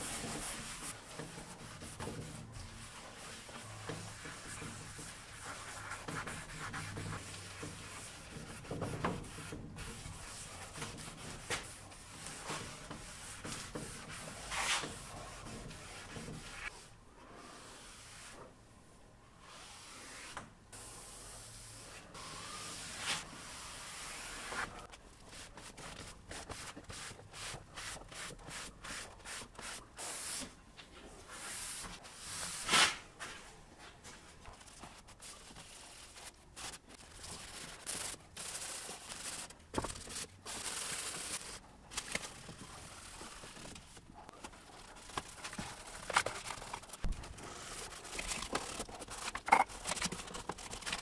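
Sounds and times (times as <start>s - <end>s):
cloth rag wiping wood: 0.0s - 16.8s.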